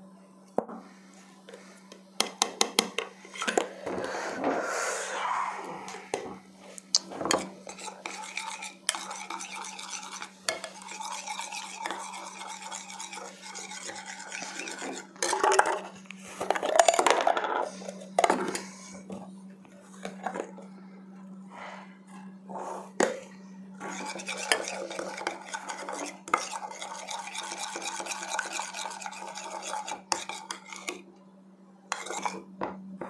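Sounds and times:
metal spoon scraping ceramic bowl: 7.3s - 15.5s, 23.8s - 31.0s, 31.9s - 32.4s.

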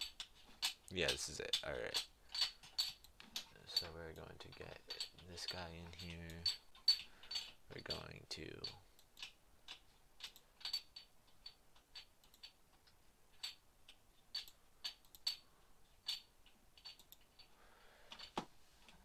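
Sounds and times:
computer mouse and keyboard clicking: 0.0s - 13.0s.

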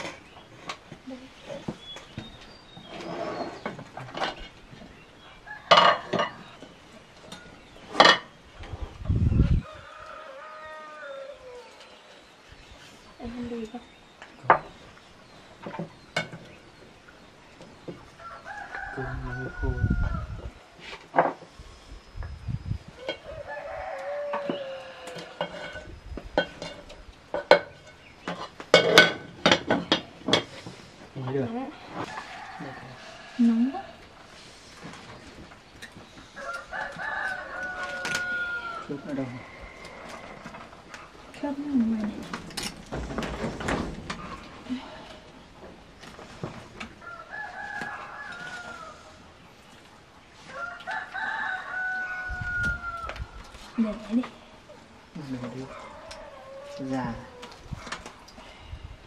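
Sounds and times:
dishes and utensils clattering: 5.7s - 6.5s, 7.3s - 8.3s, 25.2s - 30.7s
rooster crowing: 9.6s - 11.8s, 18.2s - 20.5s, 23.0s - 25.8s, 32.0s - 34.0s, 36.3s - 40.7s, 47.0s - 49.3s, 50.4s - 53.6s, 55.6s - 57.6s.

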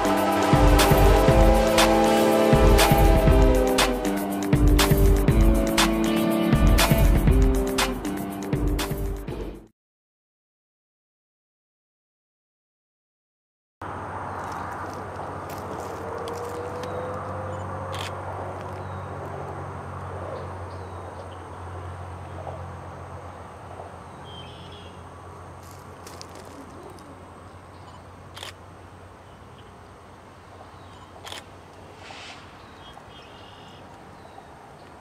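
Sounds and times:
diesel locomotive engine humming: 0.0s - 9.2s
bird chirping faintly: 30.6s - 31.3s.

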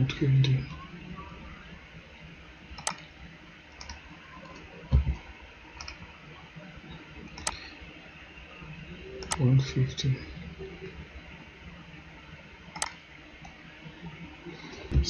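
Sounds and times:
faint steady hiss: 0.0s - 15.0s
computer mouse clicks: 2.8s - 3.1s, 3.7s - 5.2s, 5.8s - 6.0s, 7.4s - 7.6s, 9.2s - 9.4s, 12.7s - 13.6s.

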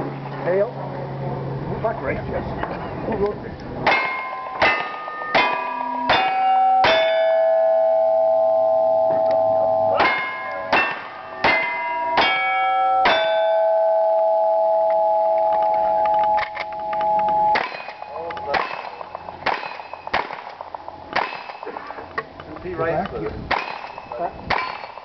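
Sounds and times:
steel target ringing: 3.8s - 22.0s, 23.5s - 25.0s.

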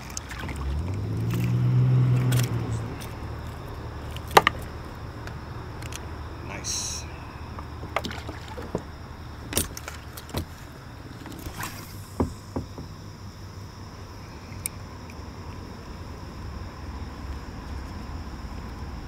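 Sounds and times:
fishing tackle clicking on kayak: 0.0s - 6.1s
low steady rumble: 0.0s - 19.0s.

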